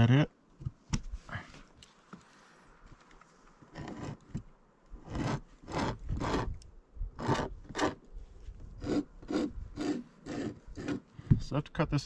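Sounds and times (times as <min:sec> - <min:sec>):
hand tool scratching into wood: 0:03.7 - 0:04.4, 0:05.0 - 0:06.6, 0:07.2 - 0:08.1, 0:08.7 - 0:11.1.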